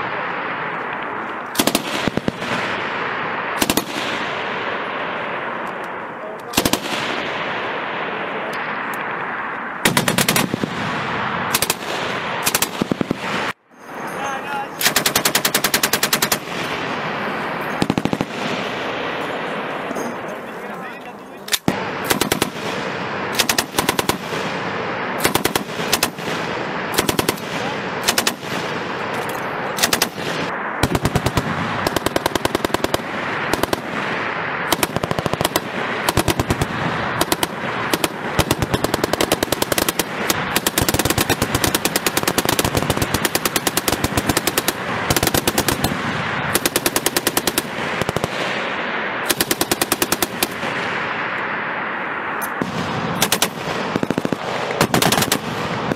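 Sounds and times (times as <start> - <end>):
machine guns firing bursts: 1.6 - 2.8, 3.6 - 4.4, 6.5 - 7.3, 9.8 - 10.9, 11.5 - 13.6, 14.8 - 17.1, 17.7 - 18.8, 21.6 - 29.1, 29.7 - 48.6, 49.3 - 50.7, 53.1 - 55.9.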